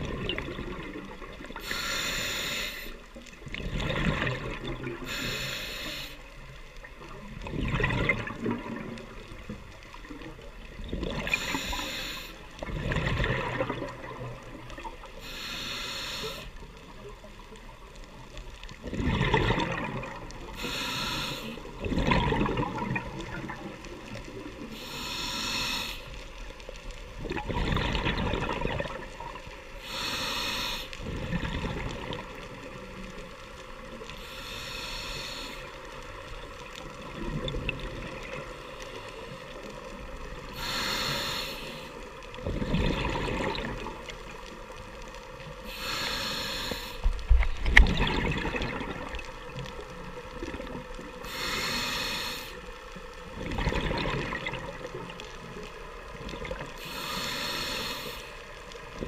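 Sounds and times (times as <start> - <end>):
gurgling exhaled bubbles: 0.0 - 1.6, 3.4 - 5.2, 7.2 - 11.8, 12.6 - 15.1, 18.7 - 20.9, 21.7 - 24.7, 27.2 - 29.4, 31.0 - 32.8, 36.8 - 38.6, 42.4 - 44.4, 47.0 - 52.0, 53.3 - 57.1
hissing regulator inhale: 1.4 - 3.1, 5.0 - 6.5, 11.2 - 12.6, 15.1 - 16.8, 20.5 - 21.9, 24.6 - 26.4, 29.4 - 31.1, 33.6 - 36.6, 38.4 - 42.2, 44.7 - 47.3, 51.2 - 53.0, 56.7 - 59.0.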